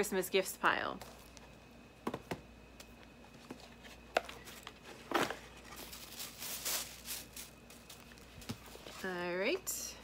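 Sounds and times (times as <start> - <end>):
packaging rustle: 3.7 - 9.0.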